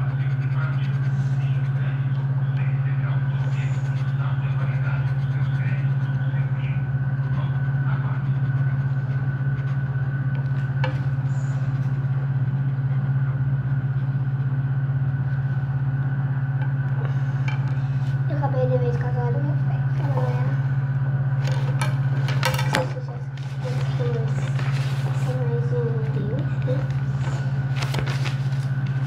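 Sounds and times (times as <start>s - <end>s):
faint high whine: 0.0s - 29.0s
loud low hum: 0.0s - 29.0s.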